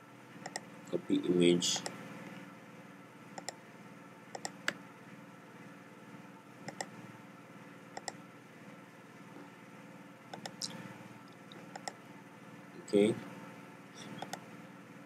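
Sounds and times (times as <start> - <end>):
faint steady hum: 0.0 - 15.0
mouse and keyboard clicks: 0.4 - 0.6, 3.4 - 3.6, 4.4 - 4.8, 6.7 - 7.0, 8.0 - 8.2, 10.3 - 10.8, 11.5 - 12.0, 14.1 - 14.4.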